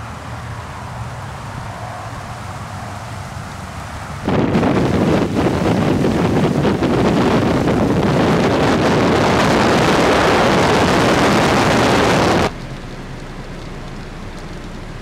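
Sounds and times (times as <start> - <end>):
wind noise on microphone: 0.0 - 12.6
heavy rain pouring: 0.1 - 15.0.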